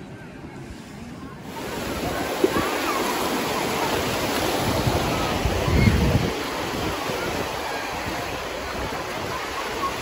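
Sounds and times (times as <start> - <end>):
small waves washing over sand: 0.4 - 10.0
wind buffeting microphone: 3.8 - 10.0.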